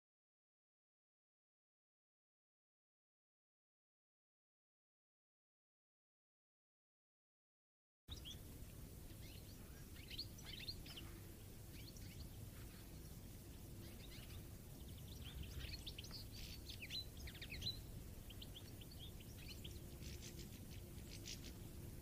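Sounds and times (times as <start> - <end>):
birds twittering: 8.1 - 22.0
low background rumble: 8.1 - 22.0.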